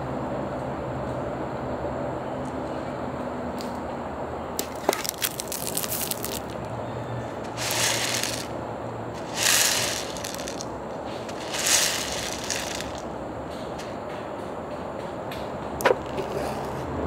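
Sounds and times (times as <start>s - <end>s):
paper cup rustling and rattling: 4.6s - 6.6s, 7.5s - 8.5s, 9.2s - 13.1s.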